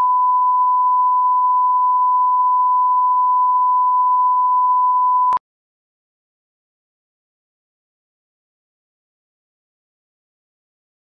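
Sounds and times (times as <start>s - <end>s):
steady sine-wave test tone: 0.0s - 5.4s.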